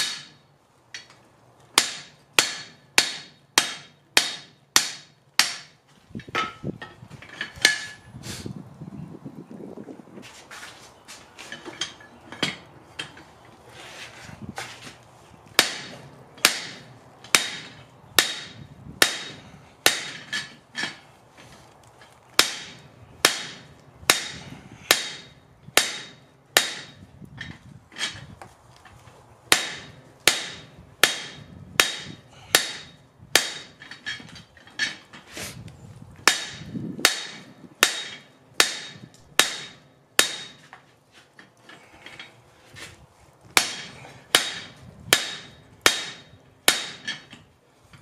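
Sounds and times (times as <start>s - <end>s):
hammer striking metal tool: 1.8s - 6.9s, 15.6s - 21.0s, 22.4s - 27.0s, 29.5s - 34.0s, 36.3s - 40.7s, 43.6s - 47.3s.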